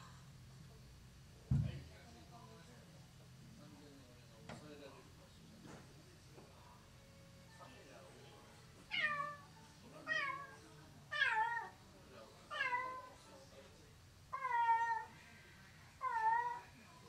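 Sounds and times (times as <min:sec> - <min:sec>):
cat meowing: 0:08.9 - 0:11.8, 0:12.5 - 0:13.1, 0:14.3 - 0:15.1, 0:16.0 - 0:16.7.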